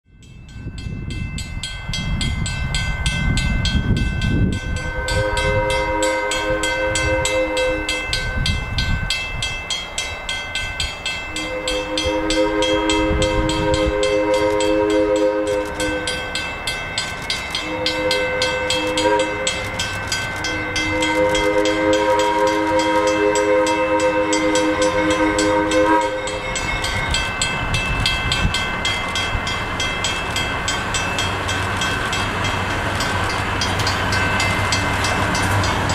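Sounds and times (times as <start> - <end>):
crossing warning bell ringing: 0.1 - 35.9
locomotive horn blasts: 4.6 - 8.6, 11.3 - 16.5, 17.6 - 27.4.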